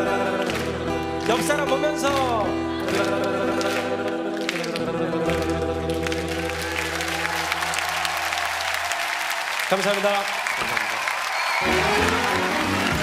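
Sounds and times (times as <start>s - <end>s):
person singing: 0.0s - 6.7s.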